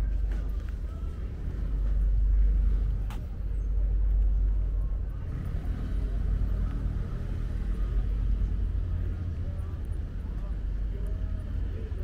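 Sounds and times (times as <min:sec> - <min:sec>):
passing car traffic rumble: 0:00.0 - 0:12.0.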